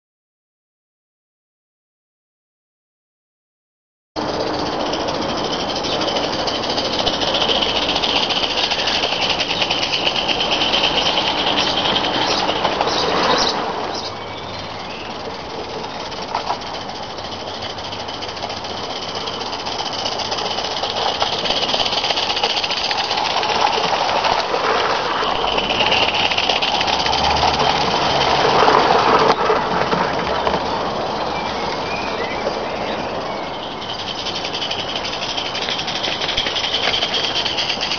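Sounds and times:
steam hissing: 0:04.2 - 0:37.9
steam locomotive exhaust beating: 0:04.2 - 0:37.9.

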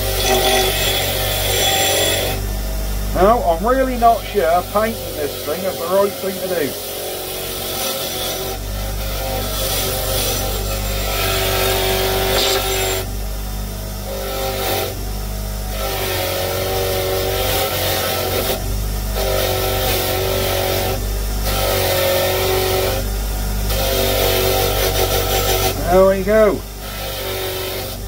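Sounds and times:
bench grinder motor hum: 0:00.0 - 0:28.0
wire wheel whine and brushing hiss: 0:03.0 - 0:06.8.

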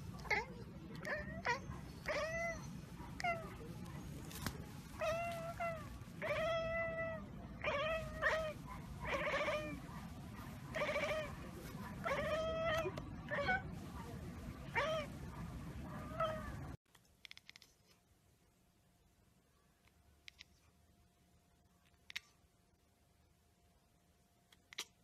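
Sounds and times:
cat chirping and chattering: 0:00.1 - 0:04.2, 0:04.8 - 0:13.8, 0:14.6 - 0:15.3, 0:15.9 - 0:17.6, 0:21.9 - 0:22.4, 0:24.6 - 0:25.0.

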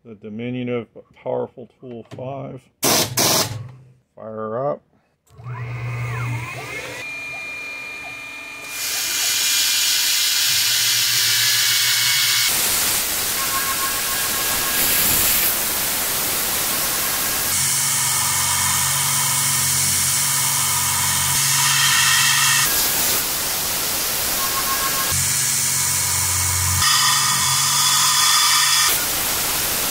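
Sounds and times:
milling spindle whine: 0:10.0 - 0:15.0, 0:24.0 - 0:29.1
compressed air hissing: 0:12.5 - 0:17.6.

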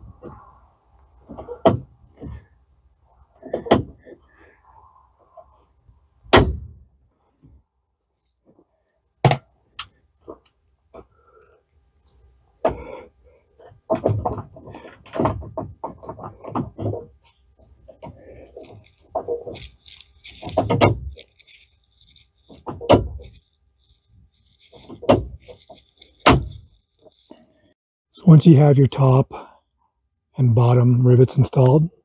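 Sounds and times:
metal parts clacking and rattling: 0:18.1 - 0:27.6.

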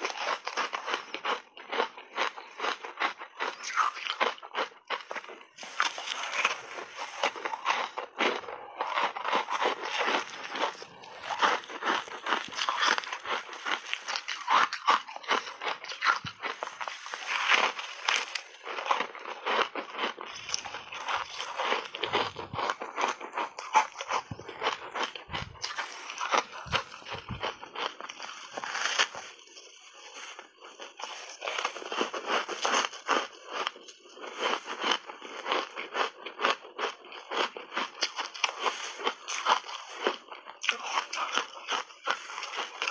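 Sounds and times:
crunching bite: 0:00.0 - 0:42.9
shaved ice crunching and crackling: 0:05.2 - 0:35.9, 0:37.4 - 0:42.9.

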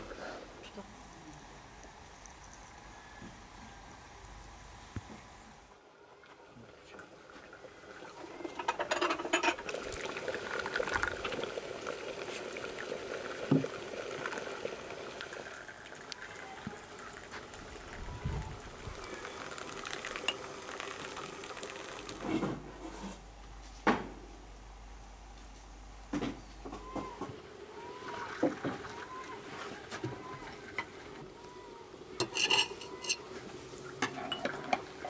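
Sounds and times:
tea pouring into cups: 0:06.5 - 0:22.6, 0:27.8 - 0:35.0
china clinking: 0:32.2 - 0:33.3.

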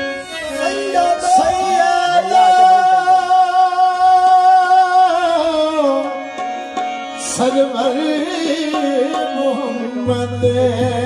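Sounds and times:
harmonium: 0:00.0 - 0:11.0
man singing long note: 0:00.1 - 0:06.2.

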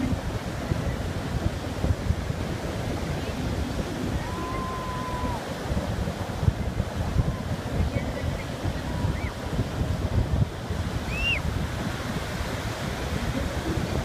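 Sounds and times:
surf breaking and washing: 0:00.0 - 0:14.0
wind buffeting microphone: 0:00.0 - 0:14.0.

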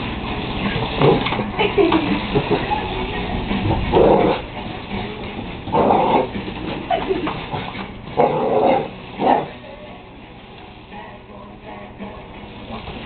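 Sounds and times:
dog barking: 0:08.2 - 0:09.6.

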